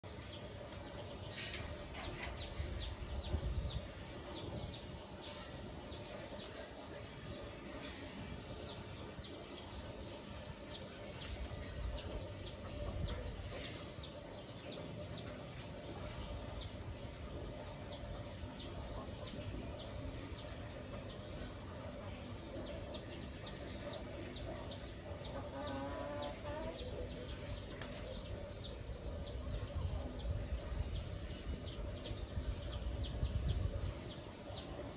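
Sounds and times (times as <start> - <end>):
chicks peeping: 0.1 - 34.9
chicken clucking: 22.6 - 28.4.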